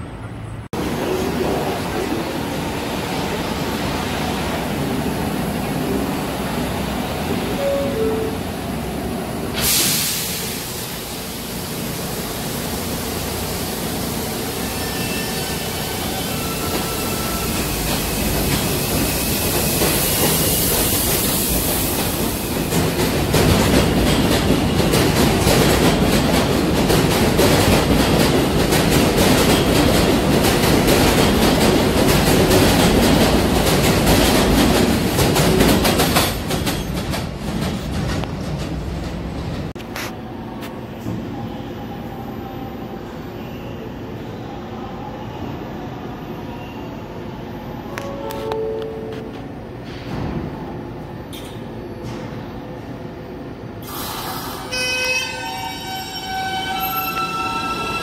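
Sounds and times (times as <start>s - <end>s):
hiss of air: 9.5s - 14.7s, 53.8s - 54.7s
train wheels clattering: 16.6s - 39.7s.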